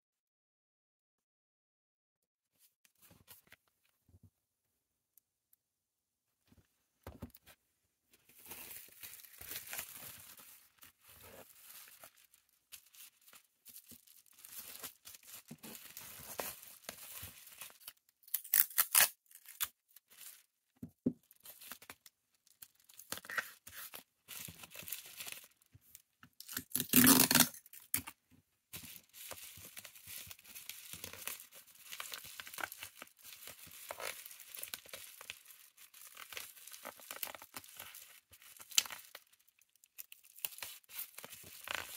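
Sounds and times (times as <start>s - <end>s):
bubble wrap crinkling: 8.3s - 20.5s, 21.2s - 41.9s
tape ripping from dispenser: 18.3s - 19.7s, 26.4s - 27.7s.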